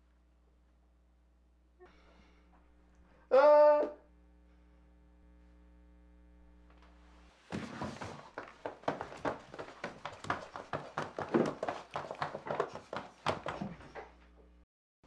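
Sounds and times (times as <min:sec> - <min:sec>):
faint hum: 0:00.0 - 0:07.4
rapid knocks and thuds: 0:07.5 - 0:14.0.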